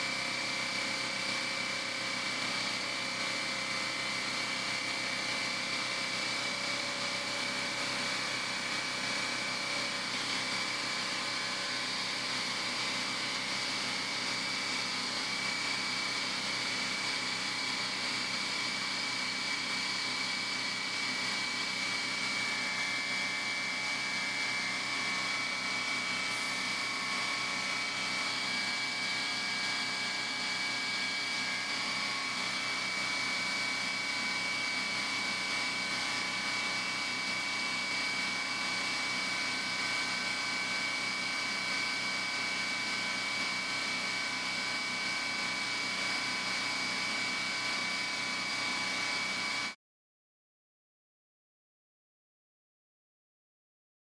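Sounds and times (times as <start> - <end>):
spray gun hissing air: 26.3 - 27.6.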